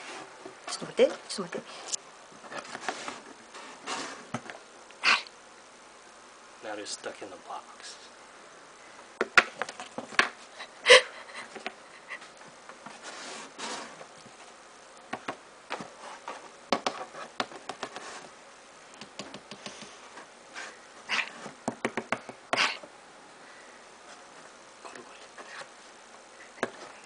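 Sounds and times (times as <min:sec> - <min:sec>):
cat scratching cardboard: 0:15.8 - 0:18.4.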